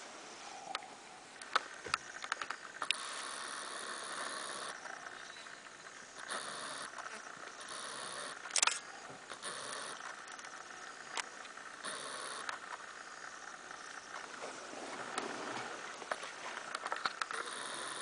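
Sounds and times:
sharp clicks: 1.4 - 3.0, 8.3 - 12.9.

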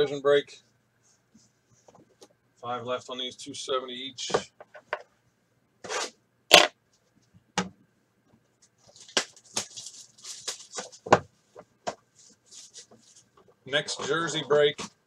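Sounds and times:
cellophane wrapper crinkling: 8.8 - 11.1, 12.2 - 13.3.

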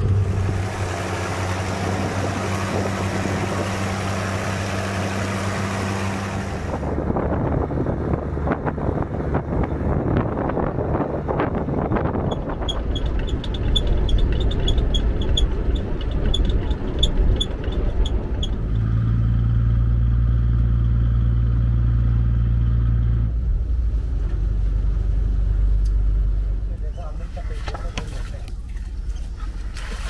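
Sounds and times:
pump boat engine drone: 0.0 - 20.3, 23.4 - 30.0
wind and water rumble: 0.0 - 20.4, 23.2 - 30.0
boat engine running: 0.0 - 22.3.

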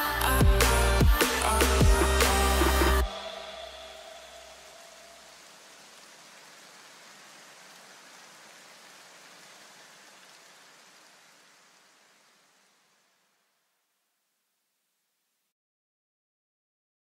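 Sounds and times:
backing music: 0.0 - 5.0
faint static hiss: 0.0 - 15.5.

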